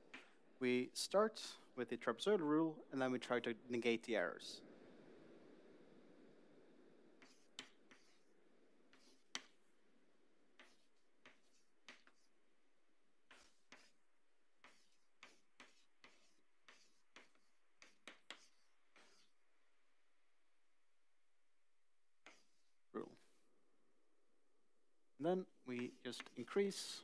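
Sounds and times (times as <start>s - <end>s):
chalk tapping on blackboard: 7.2s - 8.3s, 8.9s - 9.6s, 10.5s - 12.4s, 13.2s - 14.0s, 14.6s - 19.4s, 22.2s - 22.7s, 25.8s - 27.0s.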